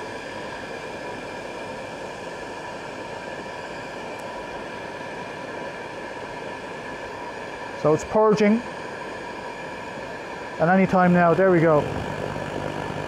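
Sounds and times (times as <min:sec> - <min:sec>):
oil burner fan rushing: 0:00.0 - 0:13.0
steady tones: 0:10.2 - 0:13.0.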